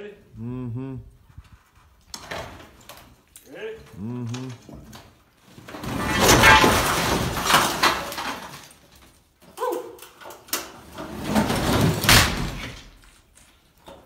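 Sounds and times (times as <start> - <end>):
bricks and rubble crashing: 4.6 - 9.4, 10.3 - 14.0
rubble clattering: 4.6 - 14.0.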